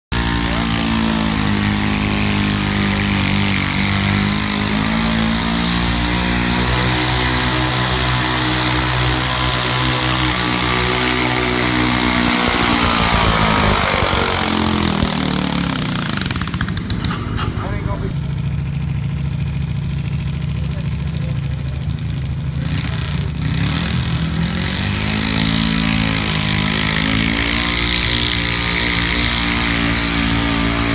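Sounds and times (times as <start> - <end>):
tractor engine running under load: 0.1 - 23.4.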